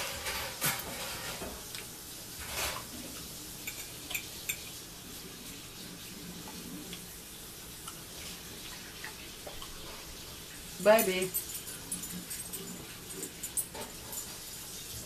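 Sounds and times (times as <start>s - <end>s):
cutlery clicking on plate: 3.6s - 4.7s.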